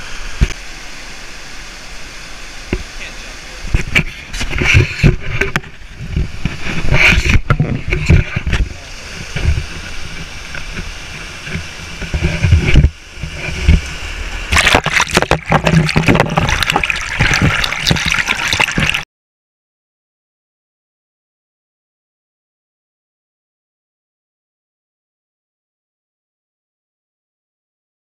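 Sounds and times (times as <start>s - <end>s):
stream rushing over rocks: 0.0s - 19.0s.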